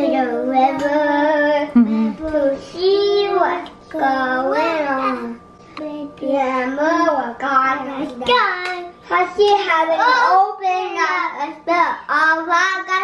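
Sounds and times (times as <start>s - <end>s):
child singing: 0.0s - 1.7s.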